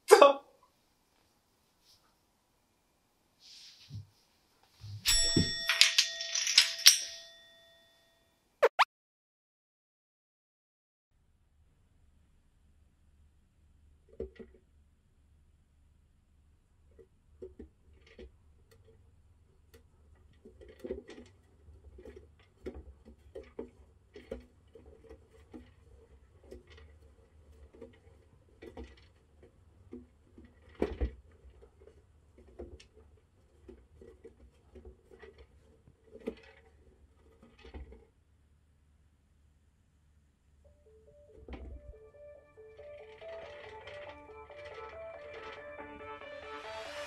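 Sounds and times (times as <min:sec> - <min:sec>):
chinchilla running in exercise wheel: 0:16.7 - 0:38.7, 0:42.8 - 0:45.8.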